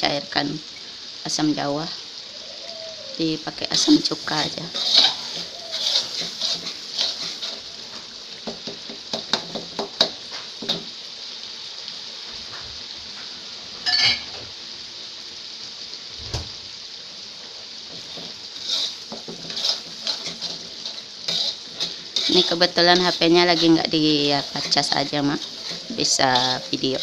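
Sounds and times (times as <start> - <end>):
sauce sizzling in a wok: 0.0 - 27.0
metal spatula scraping a pan: 3.8 - 8.1, 17.9 - 27.0.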